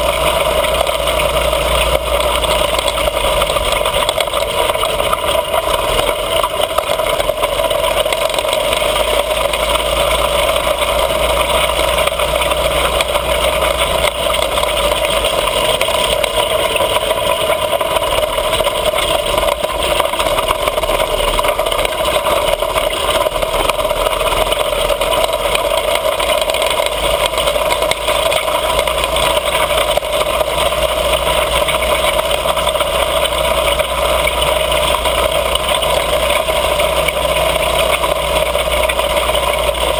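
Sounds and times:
mini bike engine running: 0:00.0 - 0:39.9.

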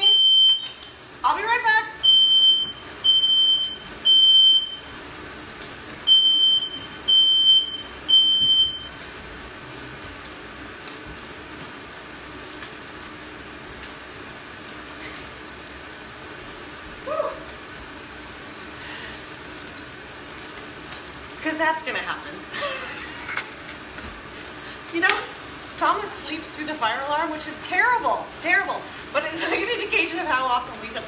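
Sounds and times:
smoke alarm beeping: 0:00.0 - 0:01.0, 0:02.0 - 0:05.0, 0:06.0 - 0:09.1.

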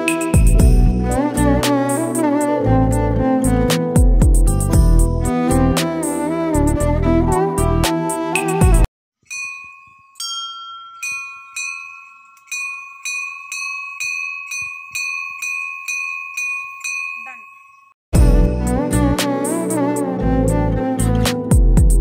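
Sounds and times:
metal bells ringing: 0:09.2 - 0:18.0.

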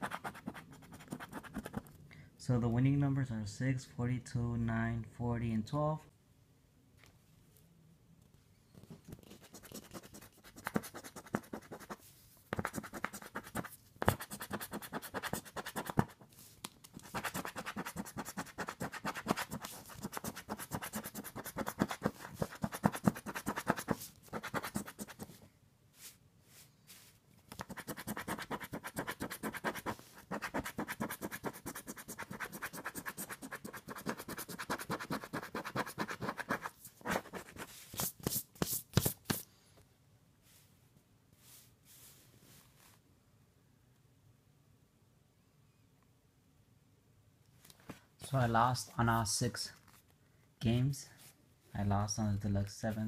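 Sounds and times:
scratching lottery ticket: 0:09.2 - 0:12.0, 0:12.6 - 0:16.2, 0:16.9 - 0:25.3, 0:27.6 - 0:39.2.

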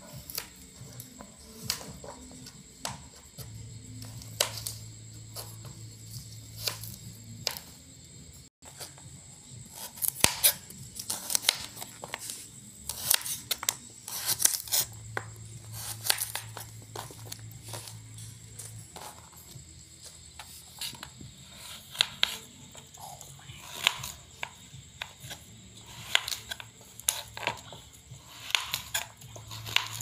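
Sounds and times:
knife slicing carrot on board: 0:09.7 - 0:19.6, 0:20.4 - 0:22.5, 0:23.6 - 0:30.0.

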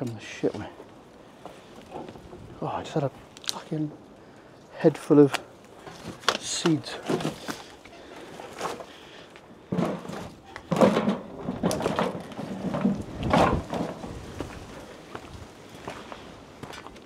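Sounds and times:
footsteps through debris: 0:05.2 - 0:17.0.

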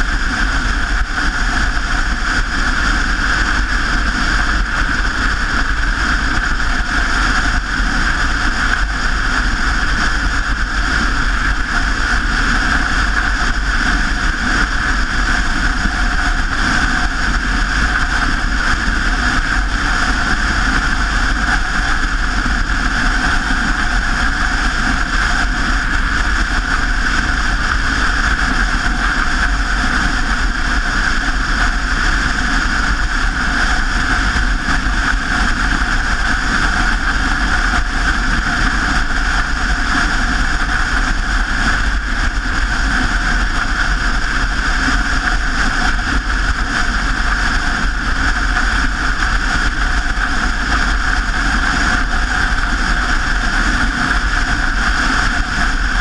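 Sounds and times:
bicycle tyre and road noise: 0:00.0 - 0:56.0
wind on microphone: 0:00.0 - 0:56.0.

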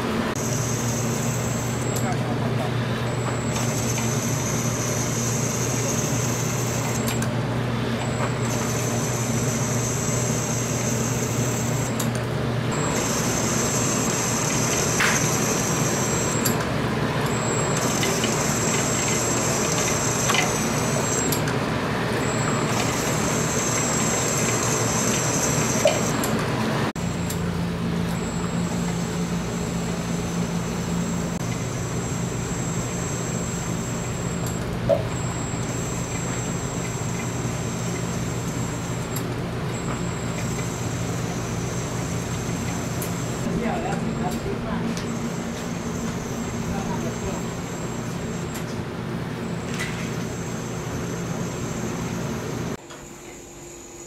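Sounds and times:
peeling machine low hum: 0:00.0 - 0:54.0
thin high whine: 0:39.8 - 0:48.6.

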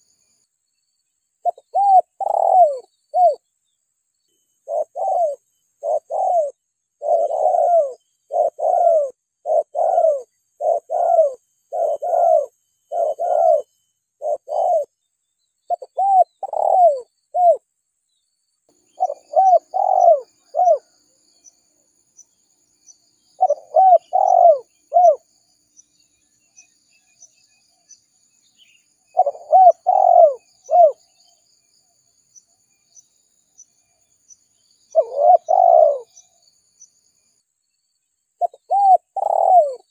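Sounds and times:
faint high-pitched chirping: 0:00.0 - 0:39.9
dove cooing: 0:01.4 - 0:03.4, 0:04.6 - 0:14.9, 0:15.7 - 0:17.6, 0:19.0 - 0:20.9, 0:23.4 - 0:25.2, 0:29.1 - 0:31.1, 0:34.9 - 0:36.2, 0:38.4 - 0:39.9.

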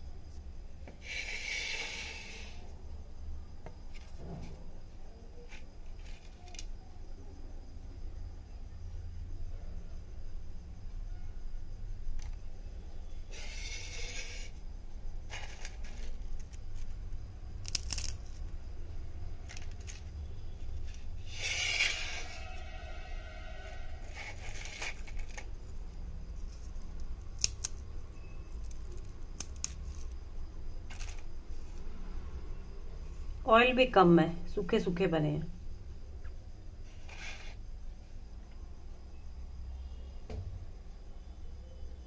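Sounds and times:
dry chips crackling when crushed: 0:17.6 - 0:18.5, 0:26.4 - 0:27.8, 0:28.5 - 0:30.2, 0:30.9 - 0:31.3.

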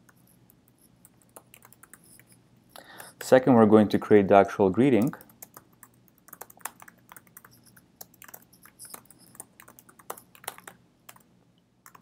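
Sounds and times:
typing on computer keyboard: 0:00.0 - 0:02.4, 0:05.0 - 0:12.0.

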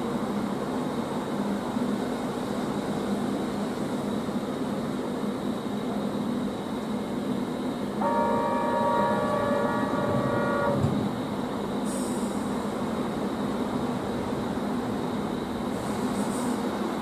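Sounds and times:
electric train humming: 0:00.0 - 0:17.0
train horn chord: 0:08.0 - 0:11.1
air hiss: 0:11.8 - 0:12.9, 0:15.7 - 0:16.9.

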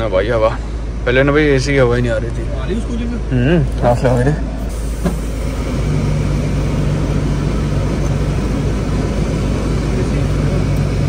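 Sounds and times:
engine idling: 0:00.0 - 0:11.0
steady hum: 0:02.4 - 0:11.0
air rushing from vents: 0:04.4 - 0:11.0.

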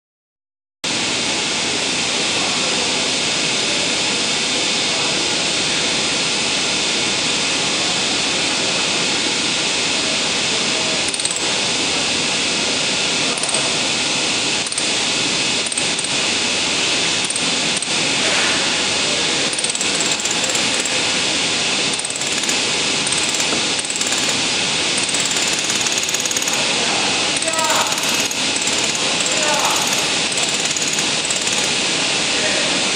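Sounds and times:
workshop machinery whirring: 0:00.9 - 0:32.9.

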